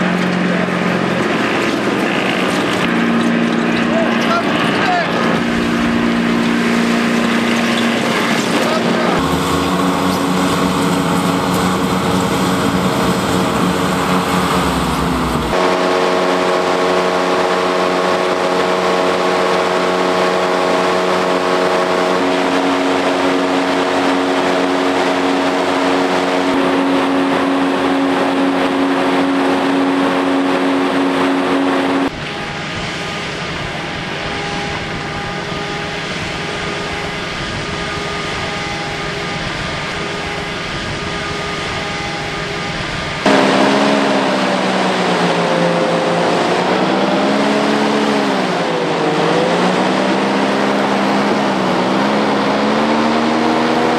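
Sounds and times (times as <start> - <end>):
boat engine droning: 0.0 - 53.9.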